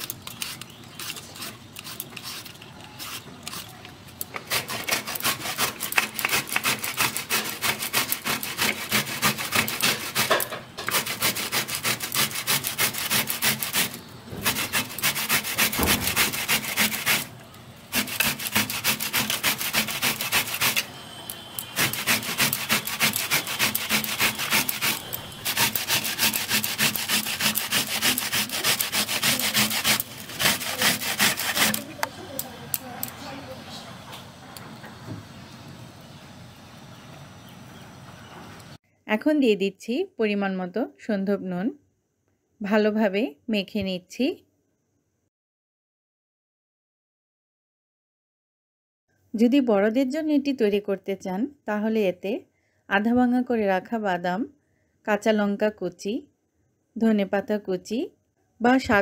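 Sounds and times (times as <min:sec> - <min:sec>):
banana rasping on grater: 0:00.0 - 0:17.3, 0:17.9 - 0:20.9, 0:21.6 - 0:33.2
vegetable peeler scraping peel: 0:00.0 - 0:17.3, 0:17.9 - 0:33.1.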